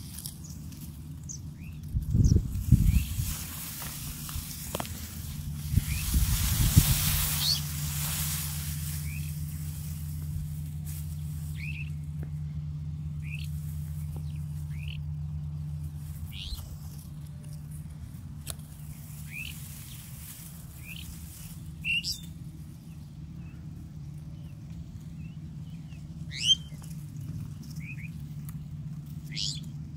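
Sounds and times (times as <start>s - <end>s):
rustling noise: 0.0s - 12.2s, 15.9s - 21.8s
steady low hum: 0.0s - 29.9s
small bird chirping: 1.3s - 3.5s, 5.6s - 6.4s, 7.2s - 7.7s, 8.8s - 9.8s, 11.5s - 12.0s, 13.2s - 15.3s, 16.3s - 16.7s, 18.8s - 20.1s, 20.8s - 23.6s, 25.2s - 27.0s, 29.3s - 29.7s.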